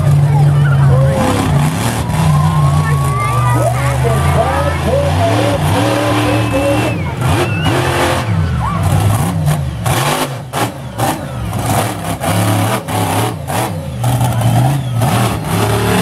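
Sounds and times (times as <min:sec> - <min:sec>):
monster truck engine revving: 0:00.0 - 0:16.0.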